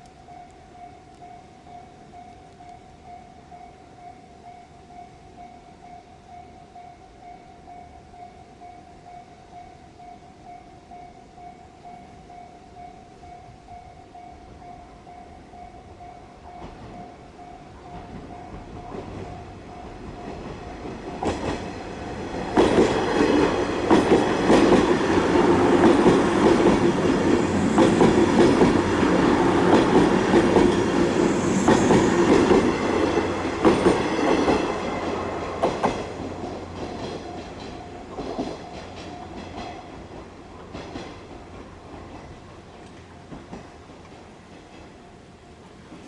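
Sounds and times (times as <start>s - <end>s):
crossing warning bell clanging: 0.0s - 46.0s
train wheels clacking over rail joints: 17.9s - 45.1s.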